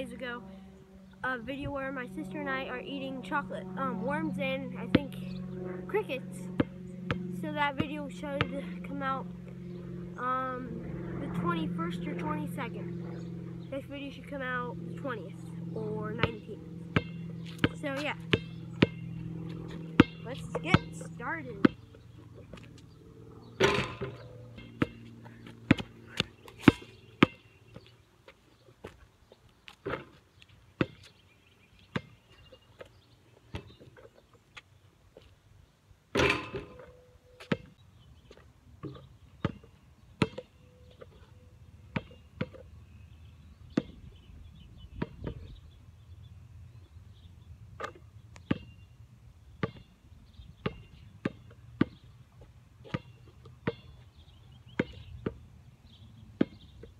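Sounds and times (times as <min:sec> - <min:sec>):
basketball bouncing on asphalt: 0:04.8 - 0:10.1, 0:13.3 - 0:31.2, 0:31.8 - 0:35.3, 0:36.1 - 0:41.2, 0:41.8 - 0:44.2, 0:44.8 - 0:45.6, 0:47.8 - 0:48.9, 0:49.5 - 0:55.5, 0:56.3 - 0:56.9
ball striking hoop: 0:06.6 - 0:08.6, 0:16.1 - 0:21.8, 0:23.6 - 0:25.0, 0:36.1 - 0:36.8.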